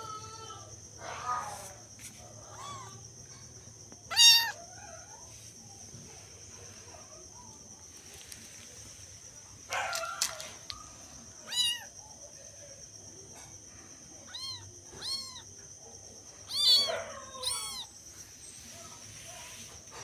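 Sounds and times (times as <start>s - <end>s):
kittens meowing: 2.4s - 3.1s, 4.1s - 5.2s, 11.4s - 12.0s, 14.2s - 15.6s, 16.4s - 18.0s.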